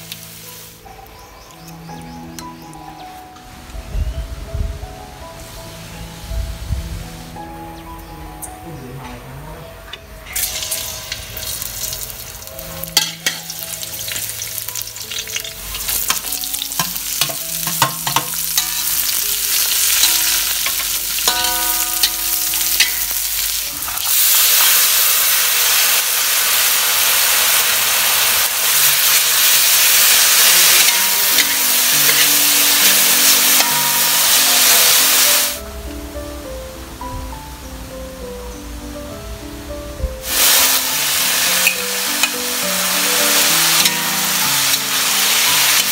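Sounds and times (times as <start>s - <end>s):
metal utensil scraping a wok: 10.3s - 25.4s, 28.1s - 35.6s, 40.6s - 42.5s
garlic sizzling in hot oil: 10.3s - 35.6s, 40.2s - 45.9s.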